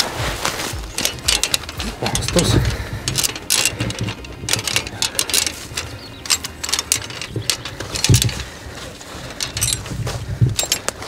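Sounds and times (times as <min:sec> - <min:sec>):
metal traps and chains rattling: 0:00.0 - 0:11.0.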